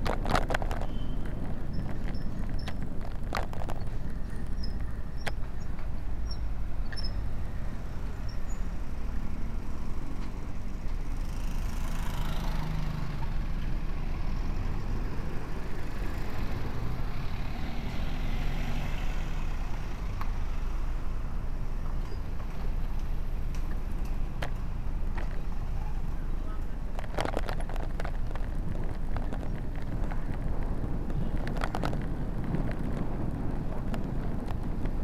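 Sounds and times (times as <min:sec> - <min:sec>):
traffic noise: 0:00.0 - 0:35.0
wind and road rumble: 0:00.0 - 0:35.0.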